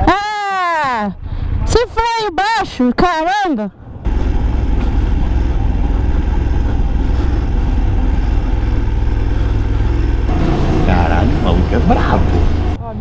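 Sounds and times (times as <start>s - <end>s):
motorcycle engine rumbling: 3.8s - 13.0s.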